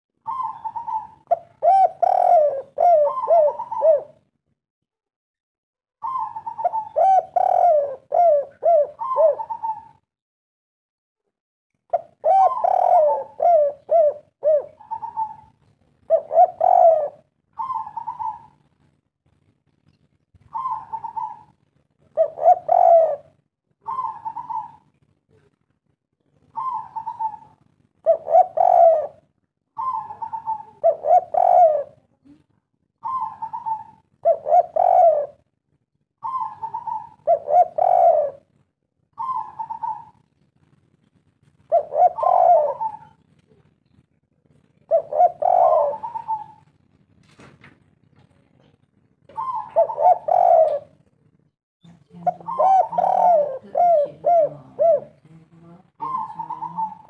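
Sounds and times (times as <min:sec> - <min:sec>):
dove cooing: 0:00.2 - 0:04.3, 0:06.0 - 0:10.1, 0:11.9 - 0:18.6, 0:20.4 - 0:25.5, 0:26.4 - 0:32.4, 0:33.0 - 0:35.6, 0:36.2 - 0:40.3, 0:41.6 - 0:43.7, 0:44.7 - 0:46.8, 0:48.6 - 0:51.0, 0:52.1 - 0:57.0.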